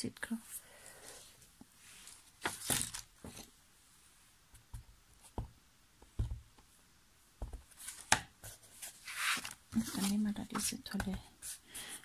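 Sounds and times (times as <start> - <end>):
card sliding rustle: 7.8 - 10.8.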